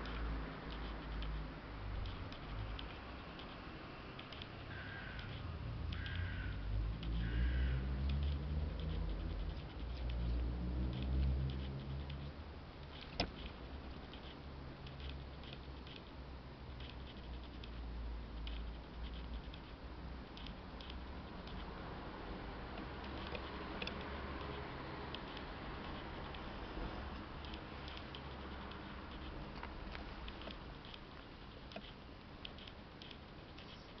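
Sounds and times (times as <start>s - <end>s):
cat licking its fur: 8.1s - 16.0s
sharp click: 12.9s - 13.6s.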